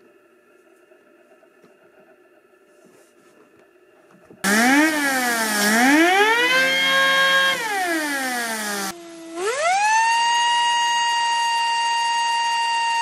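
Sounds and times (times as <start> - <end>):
turbine whining: 4.4 - 13.0.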